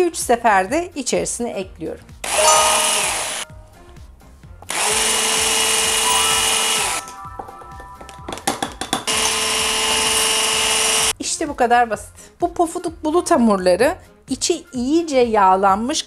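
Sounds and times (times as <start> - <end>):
electric hand mixer whisking: 4.7 - 7.0, 9.1 - 11.1.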